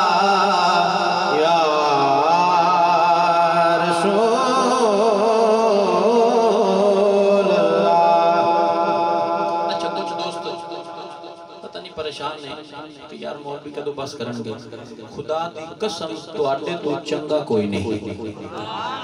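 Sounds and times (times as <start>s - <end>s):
men chanting unaccompanied: 0.0s - 9.6s.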